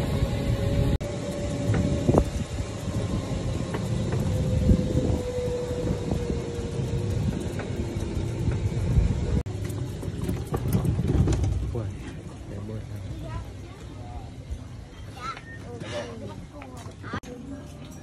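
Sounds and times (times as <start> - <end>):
electric motor whine: 0.0 - 9.4
tyres rumbling on pavement: 0.0 - 13.6
wind: 0.0 - 18.0.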